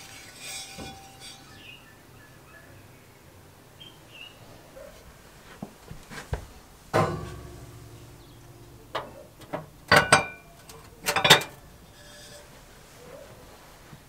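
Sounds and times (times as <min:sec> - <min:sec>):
cast iron pot clanking on rack: 0:00.0 - 0:01.8, 0:06.9 - 0:12.5.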